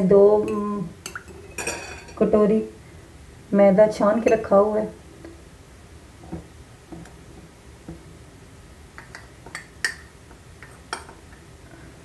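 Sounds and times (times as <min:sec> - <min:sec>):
spoon tapping glass bowl: 0:09.0 - 0:11.2.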